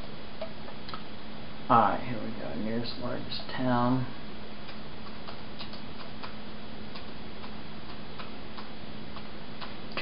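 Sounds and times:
low hum and room hiss: 0:00.0 - 0:10.0
computer mouse clicking: 0:04.7 - 0:10.0.

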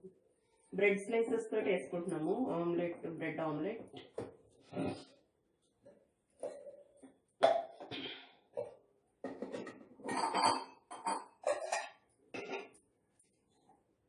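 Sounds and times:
metal containers clinking on counter: 0:08.6 - 0:12.8.

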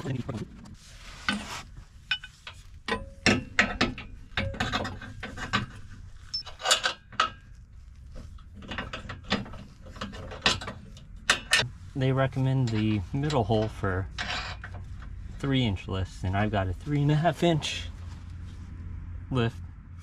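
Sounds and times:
sharp metal knocks: 0:02.9 - 0:05.8.

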